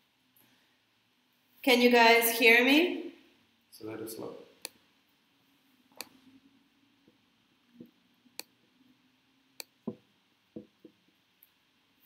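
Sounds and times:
faint room hum: 0.0s - 12.0s
light knocks: 9.8s - 10.0s.

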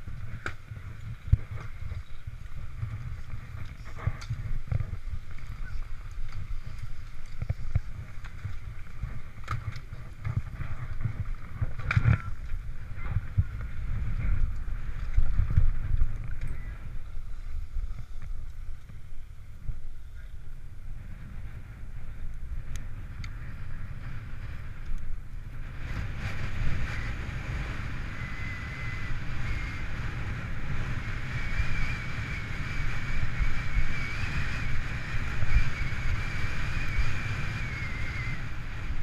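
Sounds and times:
skis scraping over snow: 0.0s - 16.2s
wind rumble on microphone: 0.0s - 39.0s.

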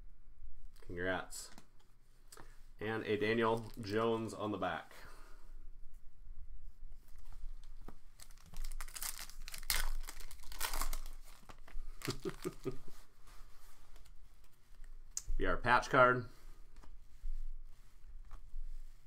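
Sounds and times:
foil wrapper tearing and crinkling: 8.2s - 12.8s.

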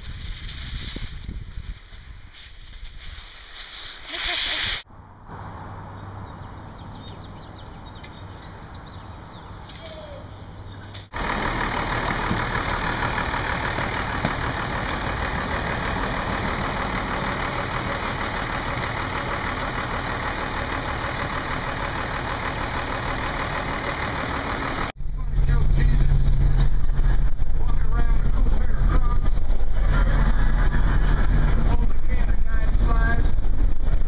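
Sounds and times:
street sound: 0.0s - 34.0s
bus engine idling: 6.3s - 33.0s.

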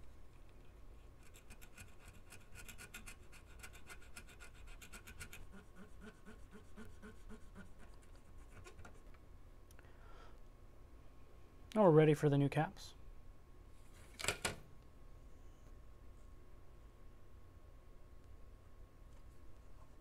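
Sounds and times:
tool scraping circuit board: 1.2s - 9.0s.

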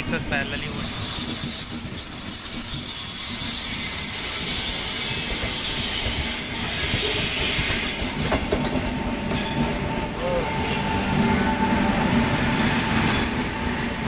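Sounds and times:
train wheels clacking: 0.9s - 14.0s
train wheel and air rushing: 3.0s - 14.0s.

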